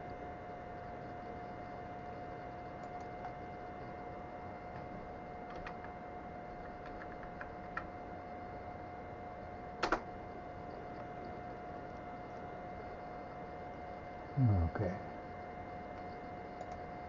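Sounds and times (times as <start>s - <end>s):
background hum with tone: 0.0s - 17.0s
computer keys clicking: 2.8s - 3.7s, 5.4s - 6.0s, 6.6s - 7.9s, 9.8s - 10.1s, 15.9s - 16.9s.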